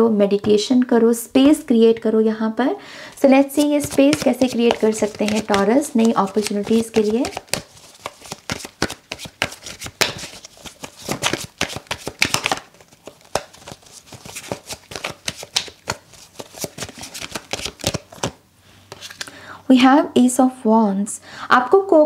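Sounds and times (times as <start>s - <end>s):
cards being shuffled: 3.1s - 19.3s.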